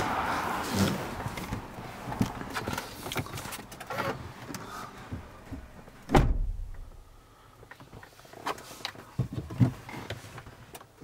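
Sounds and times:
outside noise: 0.0 - 11.0
car door shutting with thud: 6.0 - 6.8.

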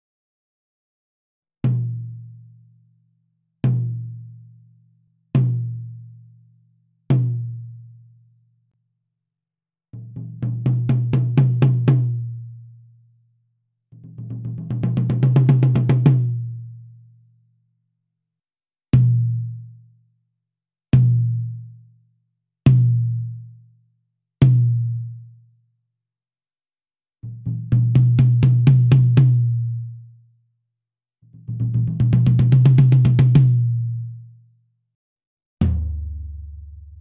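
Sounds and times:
tom drum struck with sticks: 35.6 - 37.0.

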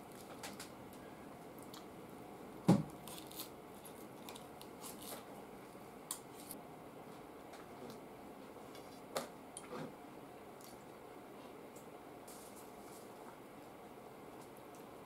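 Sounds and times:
faint crunching of chewing: 10.6 - 13.7.

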